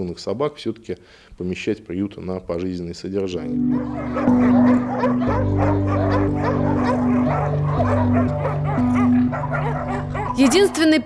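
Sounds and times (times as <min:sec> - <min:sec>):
music with low held chords: 0:03.3 - 0:10.8
dogs barking: 0:03.5 - 0:11.0.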